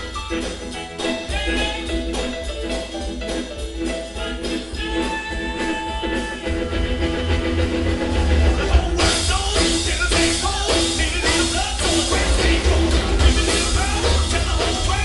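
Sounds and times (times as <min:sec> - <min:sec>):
saxophone: 0:00.0 - 0:09.2
drum kit: 0:00.0 - 0:15.0
electric guitar: 0:00.0 - 0:15.0
upright bass: 0:00.0 - 0:15.0.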